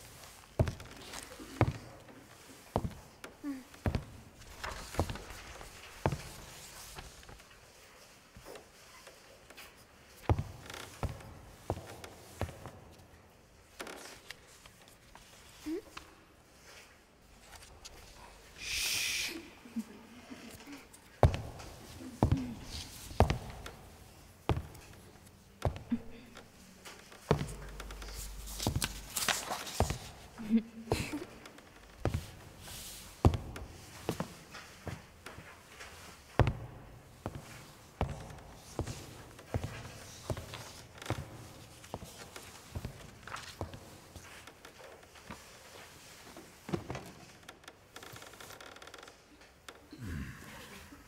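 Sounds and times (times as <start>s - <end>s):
footsteps on wooden floor: 0.1s - 7.6s, 8.3s - 13.1s, 20.6s - 49.1s
paper rustling: 4.4s - 7.9s, 27.8s - 30.3s.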